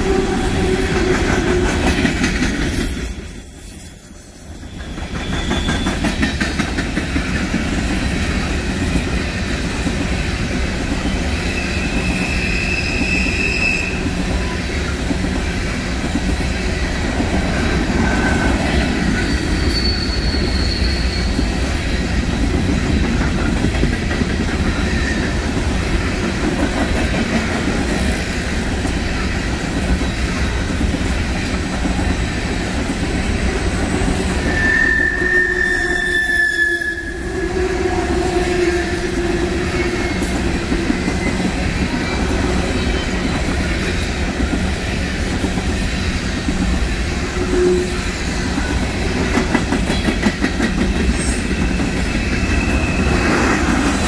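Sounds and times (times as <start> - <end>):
train wheels rumbling on rail: 0.0 - 54.0
wheel squeals: 2.6 - 6.8, 11.0 - 14.8, 18.0 - 22.0, 34.4 - 44.3, 49.9 - 54.0.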